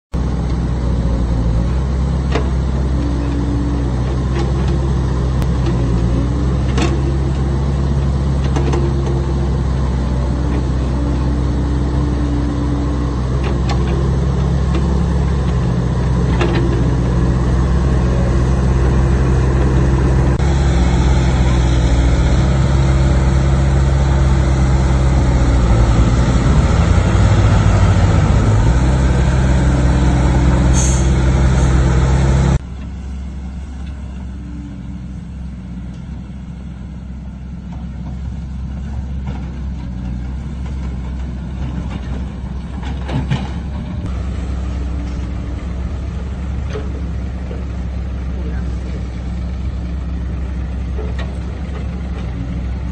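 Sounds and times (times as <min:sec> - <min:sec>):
distant diesel engine running: 0:00.1 - 0:52.9
excavator diesel engine under load: 0:00.1 - 0:52.9
high-pitched squeal: 0:17.5 - 0:32.6.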